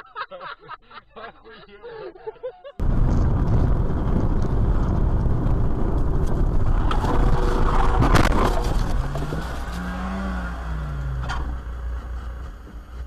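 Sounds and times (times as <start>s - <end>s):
car road wind and engine noise: 2.8s - 13.0s.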